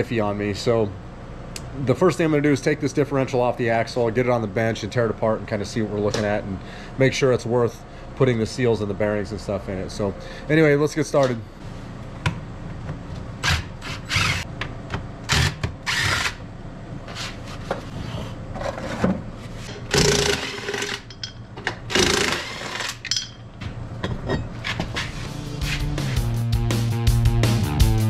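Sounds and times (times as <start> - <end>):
cordless drill spinning: 13.8 - 14.5, 15.3 - 16.4.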